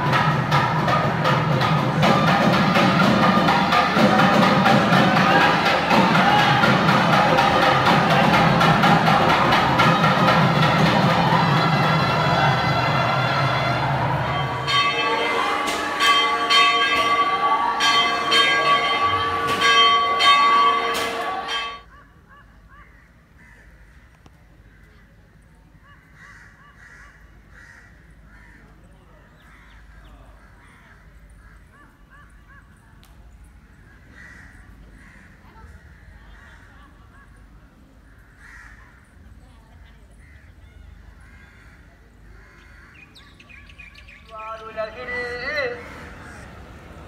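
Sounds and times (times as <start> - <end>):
music with long held notes: 0.0 - 21.8
temple bells ringing: 0.0 - 21.9
crows cawing: 21.9 - 25.0, 25.8 - 28.8, 29.4 - 32.7, 33.9 - 36.9, 38.0 - 39.2, 40.2 - 43.2, 45.7 - 46.8.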